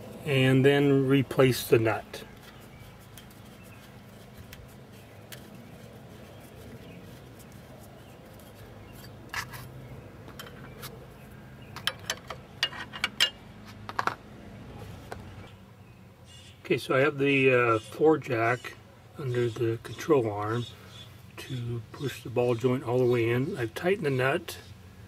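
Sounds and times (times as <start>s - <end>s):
metal parts clicking and clinking: 11.8s - 13.4s.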